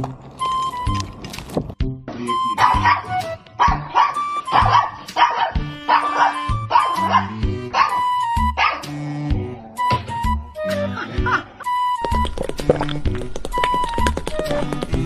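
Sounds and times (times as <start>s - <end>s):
background music: 0.0s - 15.0s
small dog barking: 2.6s - 8.8s.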